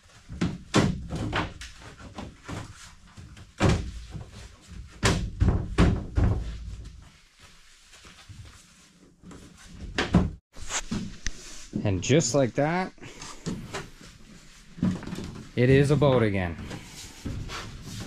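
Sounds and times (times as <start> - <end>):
hollow thuds and knocks: 3.5 - 7.0.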